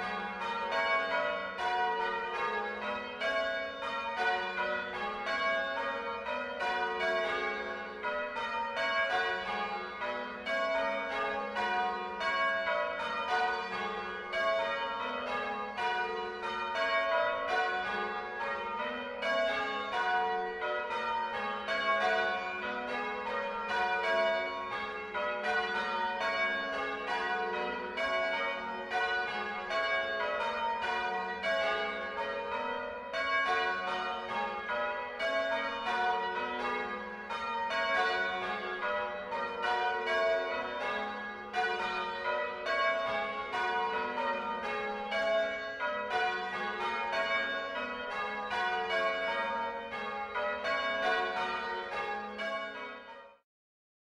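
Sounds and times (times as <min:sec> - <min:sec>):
church bells ringing: 0:00.0 - 0:53.4.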